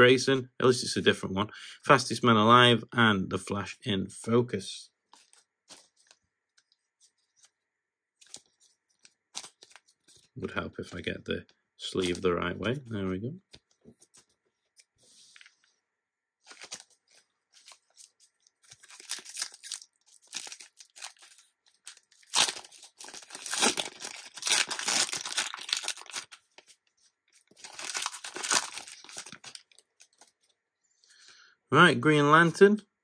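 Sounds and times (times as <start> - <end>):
wrapper being torn and crinkled: 16.4 - 17.0, 17.6 - 26.8, 27.4 - 30.3.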